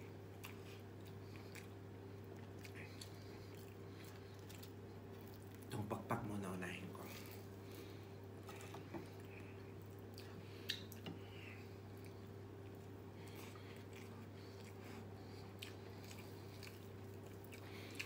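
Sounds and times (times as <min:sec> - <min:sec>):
steady low hum: 0:00.0 - 0:18.0
person chewing chicken wing: 0:00.1 - 0:05.7, 0:07.2 - 0:18.0
mouth clicks and smacks: 0:10.6 - 0:11.1.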